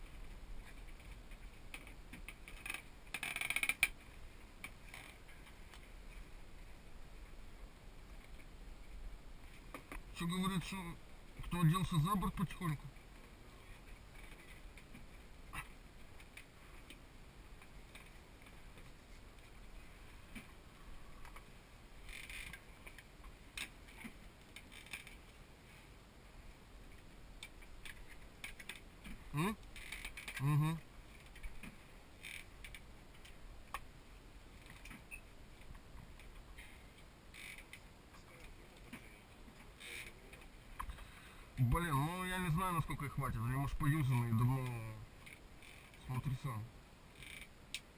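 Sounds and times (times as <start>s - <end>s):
light clicks and rattles of gear: 0.0s - 7.4s, 8.0s - 47.9s.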